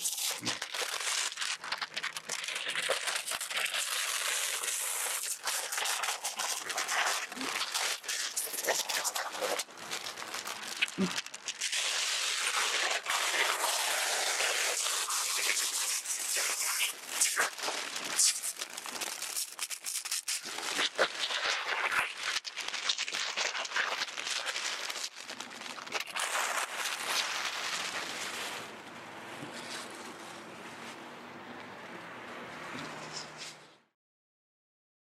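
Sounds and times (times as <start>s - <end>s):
plastic film crinkling and snapping: 0.0s - 31.0s.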